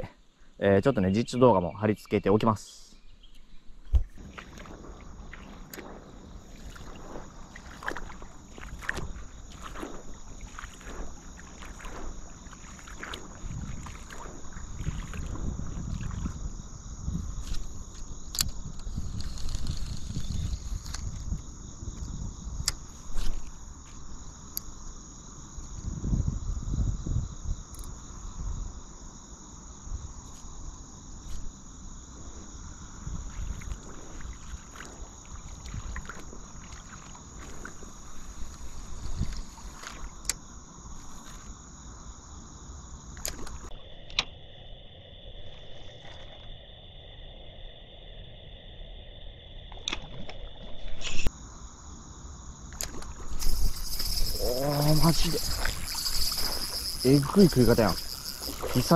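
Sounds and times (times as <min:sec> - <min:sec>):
high insect song: 0:00.0 - 0:58.9
wind rumbling on microphone: 0:03.8 - 0:24.3, 0:25.5 - 0:29.0, 0:29.7 - 0:40.3, 0:52.9 - 0:58.9.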